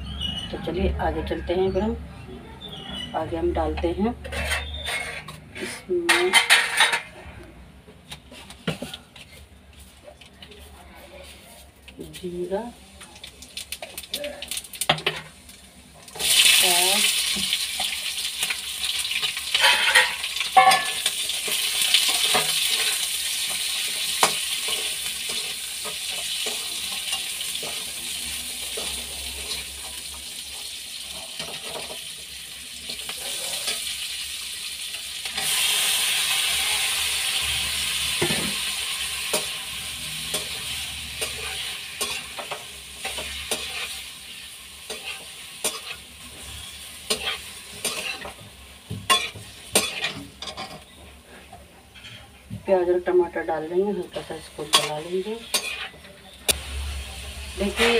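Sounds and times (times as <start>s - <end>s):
spatula scraping pan: 4.2s - 7.2s, 19.1s - 30.1s, 39.2s - 52.4s, 54.0s - 56.3s
onions sizzling in oil: 12.0s - 51.4s, 52.7s - 57.9s.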